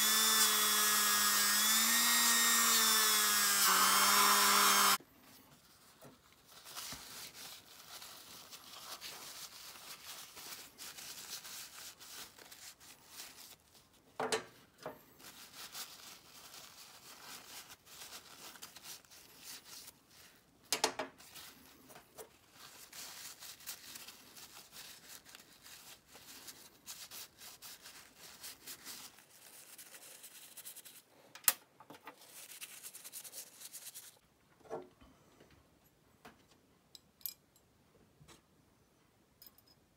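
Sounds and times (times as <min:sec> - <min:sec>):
tissue rubbing on metal clipper: 0:05.6 - 0:14.0, 0:15.1 - 0:20.4, 0:21.2 - 0:31.1, 0:32.1 - 0:34.2.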